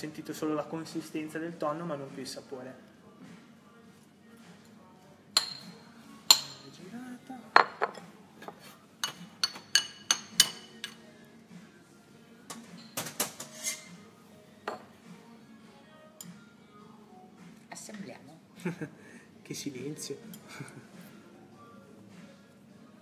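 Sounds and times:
ceramic bowls and utensils clinking: 0:05.4 - 0:06.8, 0:07.5 - 0:11.0, 0:12.5 - 0:14.0.

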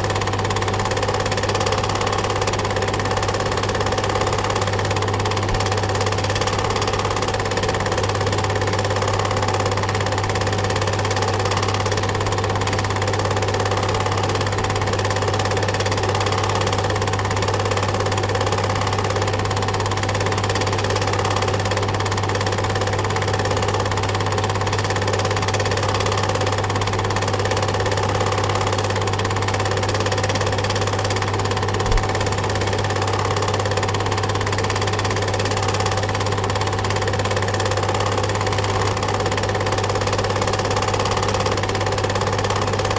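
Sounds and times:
film projector whirring: 0:00.0 - 0:42.9.

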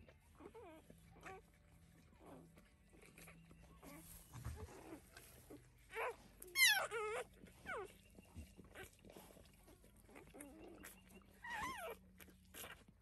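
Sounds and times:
puppy squealing: 0:05.9 - 0:07.9, 0:10.1 - 0:12.9.

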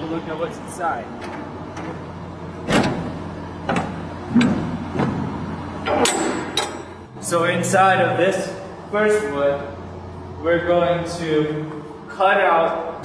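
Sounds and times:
steady low hum: 0:00.0 - 0:13.0
metal container door clanking: 0:05.8 - 0:07.0.

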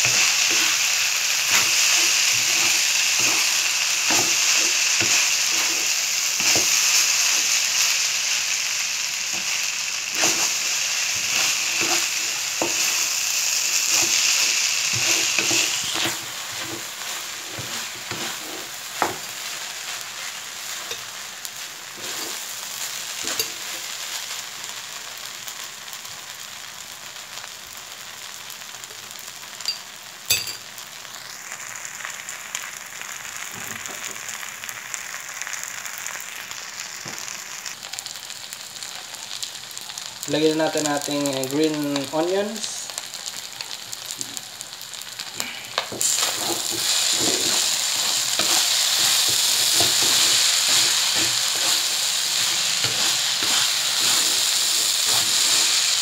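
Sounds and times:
spatula scraping a wok: 0:00.0 - 0:08.0, 0:09.3 - 0:24.0, 0:45.2 - 0:56.0
rice sizzling in a wok: 0:00.0 - 0:56.0.

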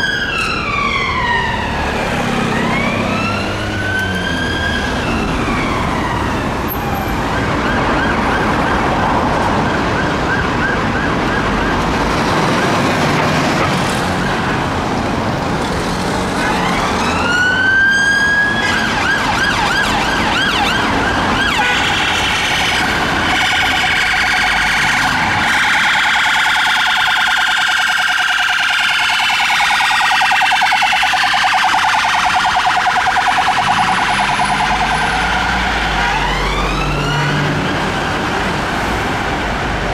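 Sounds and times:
engine and traffic noise: 0:00.0 - 0:39.9
police sirens wailing and yelping: 0:00.0 - 0:39.9
rapidly pulsing siren tone: 0:19.1 - 0:36.9.

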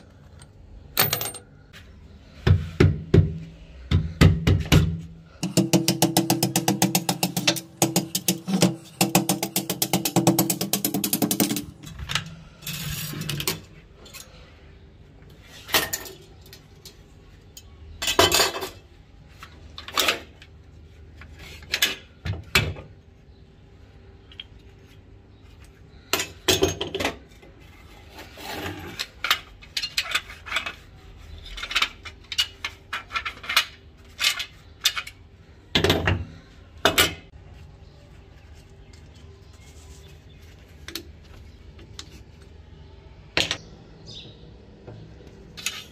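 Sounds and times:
metal parts clinking on concrete: 0:00.0 - 0:01.7, 0:45.6 - 0:45.9.

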